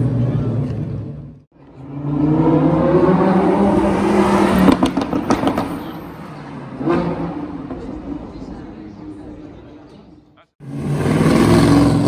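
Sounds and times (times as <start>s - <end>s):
car engine accelerating: 1.6s - 9.3s.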